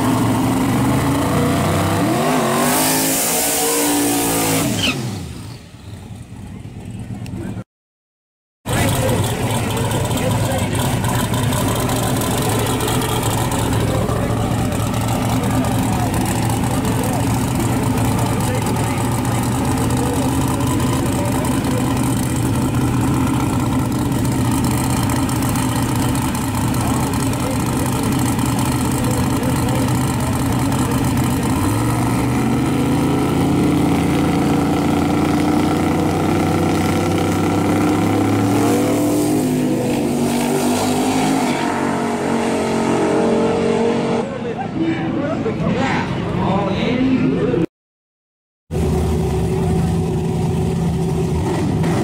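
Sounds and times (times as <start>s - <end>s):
drag racing cars revving and launching: 0.0s - 7.6s, 8.7s - 47.7s, 48.7s - 52.0s.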